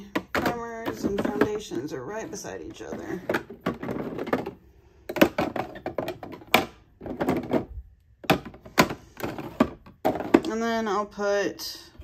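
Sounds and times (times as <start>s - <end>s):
plastic drawers clicking: 0.0s - 10.6s.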